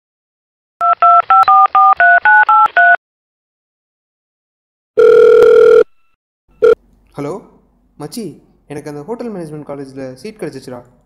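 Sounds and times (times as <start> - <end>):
phone keypad dialing beeps: 0.8 - 3.0, 5.0 - 5.9, 6.6 - 6.8
phone ringing tone: 5.0 - 6.8.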